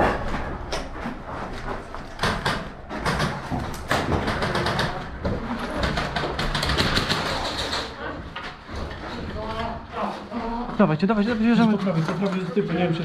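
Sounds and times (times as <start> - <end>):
airsoft gunfire rapid clicks: 2.2 - 5.0, 5.8 - 7.9.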